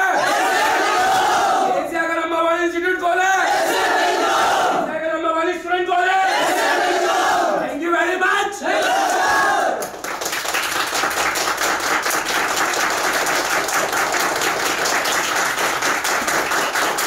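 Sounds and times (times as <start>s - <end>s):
crowd shout: 0.0s - 1.8s, 8.6s - 9.8s
crowd applauding: 9.8s - 17.0s.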